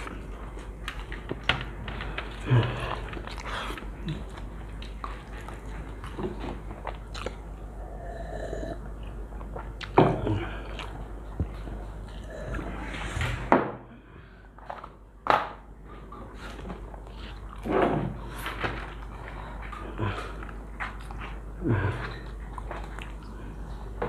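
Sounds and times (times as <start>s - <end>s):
chewing and mouth sounds: 2.1s - 7.9s, 8.8s - 12.7s, 18.9s - 24.0s.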